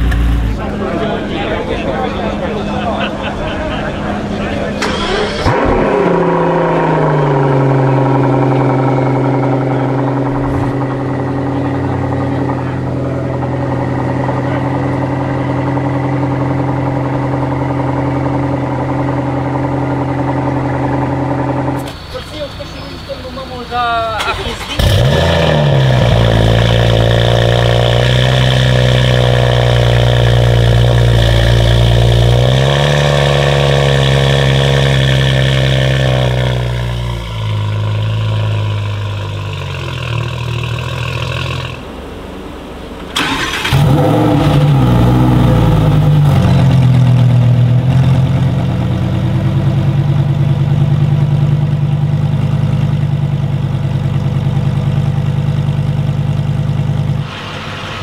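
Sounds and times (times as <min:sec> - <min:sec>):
car engine starting and idling: 0:00.0 - 0:58.0
sports car exhaust idling: 0:00.0 - 0:58.0.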